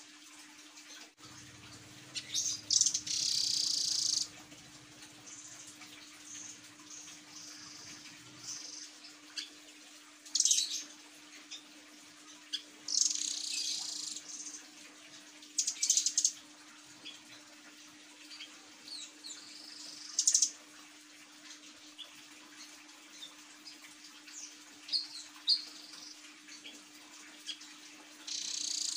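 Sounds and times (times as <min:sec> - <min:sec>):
faint steady hum: 0:00.0 - 0:28.9
bird chirps: 0:02.2 - 0:04.3, 0:28.3 - 0:28.9.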